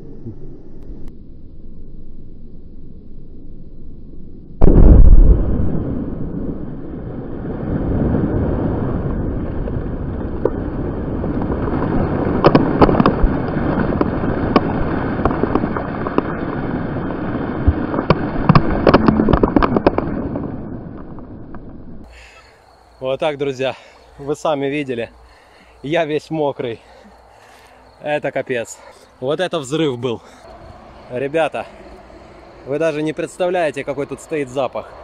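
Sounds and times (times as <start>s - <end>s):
underwater firecracker boom: 4.6s - 22.1s
water falling back rushing: 12.3s - 21.4s.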